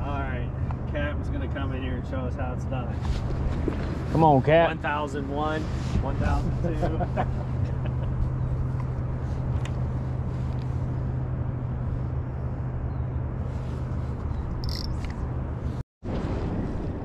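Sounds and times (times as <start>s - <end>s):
boat motor humming: 7.0s - 15.6s
wind on microphone: 13.4s - 17.0s.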